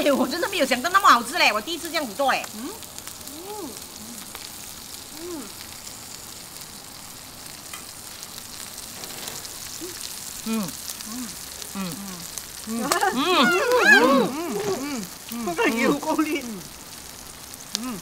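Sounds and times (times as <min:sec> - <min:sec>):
meat sizzling on grill pan: 0:00.0 - 0:18.0
people humming murmurs: 0:02.5 - 0:04.5, 0:05.1 - 0:05.6, 0:09.8 - 0:16.7, 0:17.8 - 0:18.0.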